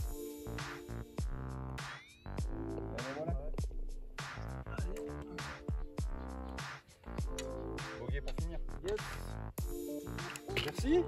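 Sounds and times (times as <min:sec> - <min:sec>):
electronic music with drum beat: 0:00.0 - 0:11.0.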